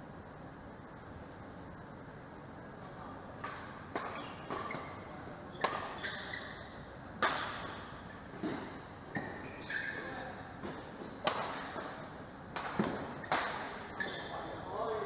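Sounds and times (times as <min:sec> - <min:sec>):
rackets hitting shuttlecock: 0:03.4 - 0:05.0, 0:05.6 - 0:06.6, 0:07.2 - 0:14.0
shoes squeaking on court: 0:04.0 - 0:12.0, 0:12.8 - 0:14.6.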